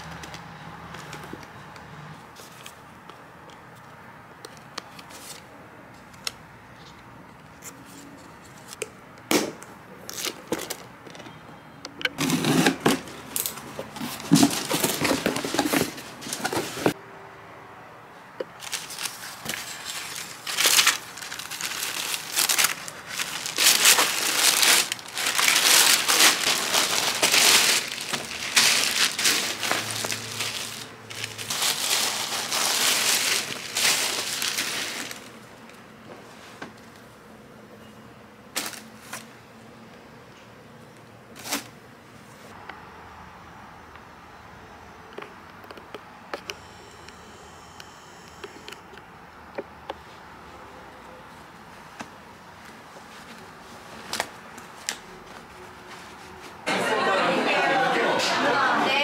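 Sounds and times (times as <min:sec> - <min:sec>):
tissue paper rustling and crinkling: 0:13.9 - 0:17.0, 0:18.6 - 0:35.4.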